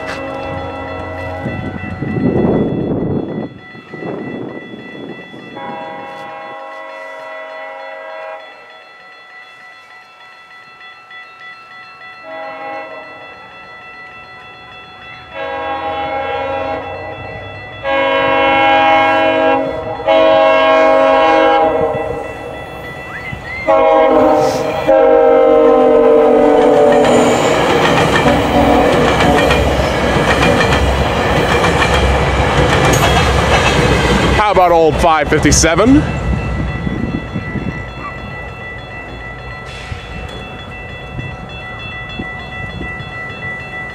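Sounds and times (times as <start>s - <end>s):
train horn blasts: 0.0s - 1.6s, 5.6s - 8.7s, 12.2s - 13.3s, 15.3s - 22.4s, 23.2s - 27.6s, 28.3s - 29.8s
train rumble and rail clatter: 0.0s - 43.9s.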